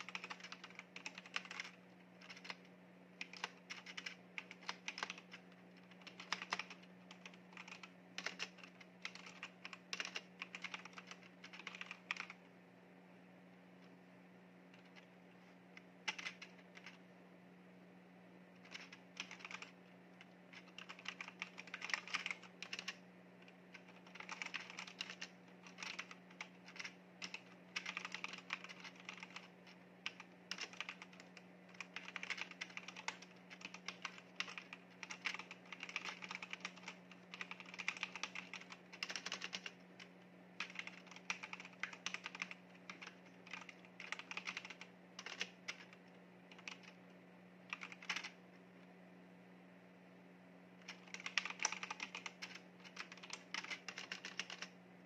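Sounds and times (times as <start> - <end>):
mechanical keyboard typing: 0.0 - 12.4, 15.8 - 17.0, 18.6 - 39.8, 40.6 - 47.0, 47.7 - 48.4, 50.8 - 54.8
faint steady hum: 0.0 - 55.0.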